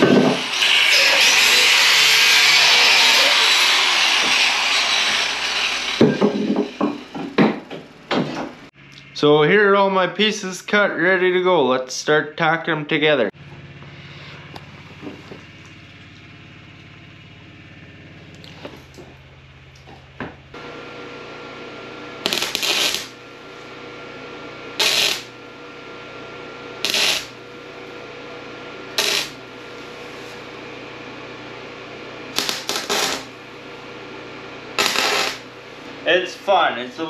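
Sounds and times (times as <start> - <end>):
welding arc crackling: 0.0 - 8.2, 22.1 - 23.7, 24.7 - 25.4, 26.7 - 27.8, 28.8 - 30.5, 32.2 - 33.7, 34.7 - 35.8
machine hum: 0.0 - 11.6, 12.9 - 37.0.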